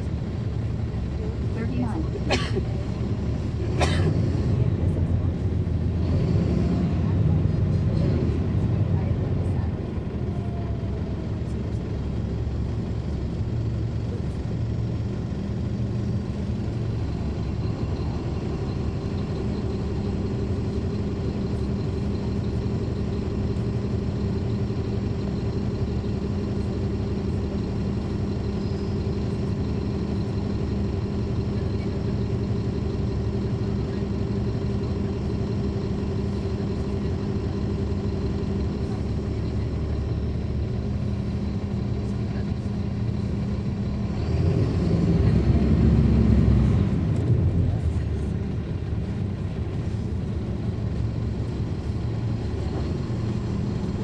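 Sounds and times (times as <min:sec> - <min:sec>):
bus diesel engine rumbling: 0:00.0 - 0:54.0.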